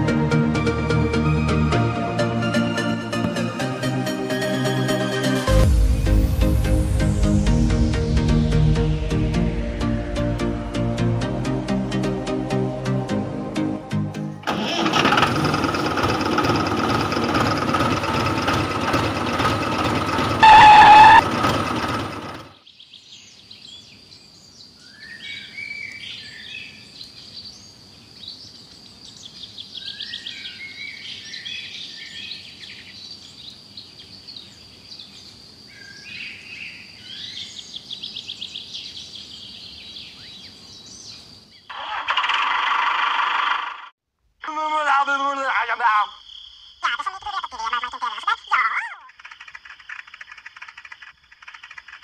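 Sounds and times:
loud music: 0.0s - 14.2s
engine noise: 14.2s - 22.6s
birds chirping: 16.8s - 42.0s, 44.5s - 52.0s
loud horn-like tone: 20.2s - 21.4s.

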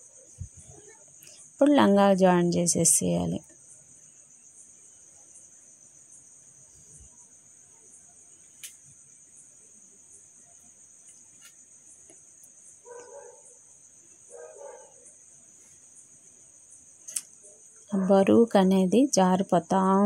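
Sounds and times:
crickets chirring: 0.0s - 20.0s.

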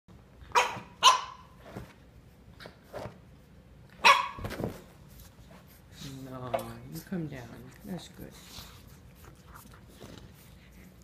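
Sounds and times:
dog barking: 0.5s - 1.5s, 4.0s - 4.5s.

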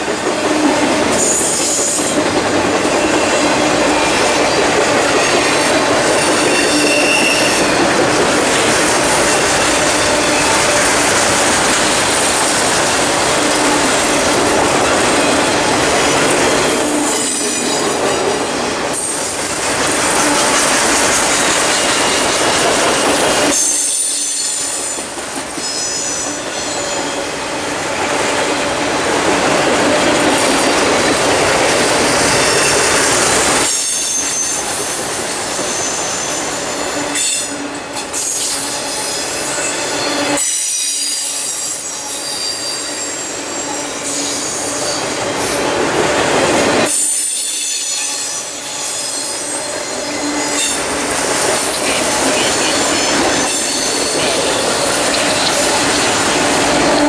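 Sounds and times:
train wheels rumbling on rail: 0.0s - 57.0s
high-pitched wheel squeal: 6.2s - 7.8s.

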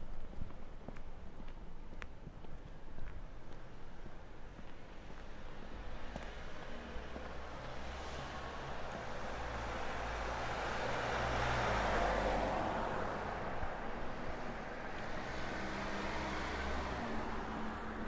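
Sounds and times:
car passing: 4.8s - 18.0s.

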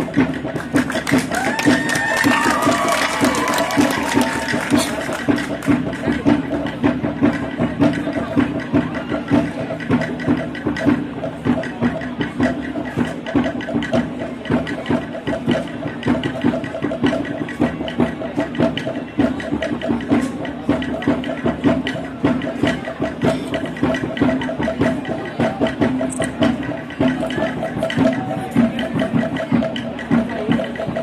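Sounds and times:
drum beat: 0.0s - 31.0s.

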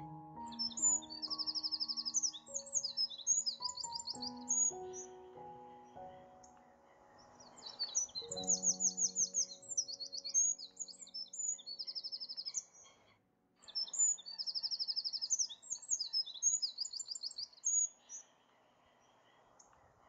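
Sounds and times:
small birds chirping: 0.0s - 20.0s.

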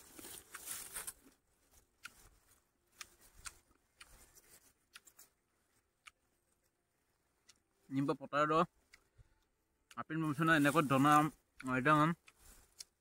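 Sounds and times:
soft rustle: 0.0s - 6.8s, 10.4s - 11.3s
person chewing: 0.0s - 7.7s.

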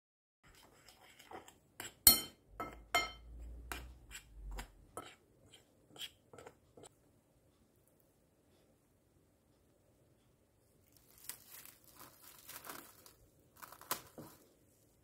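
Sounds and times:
spoon scraping ceramic bowl: 0.4s - 6.9s.

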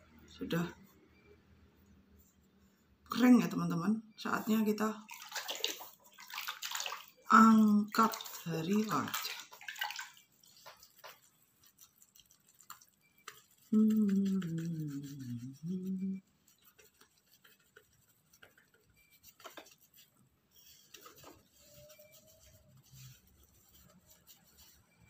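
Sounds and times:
cloth rubbing over skin: 5.1s - 25.0s
person humming: 13.7s - 16.2s.

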